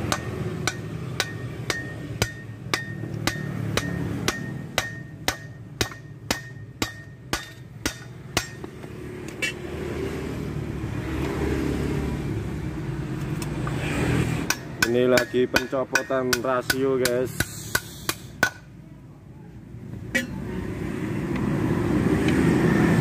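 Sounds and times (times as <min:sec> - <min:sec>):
hammer striking metal: 0:00.0 - 0:09.6, 0:14.4 - 0:18.7, 0:20.1 - 0:20.4.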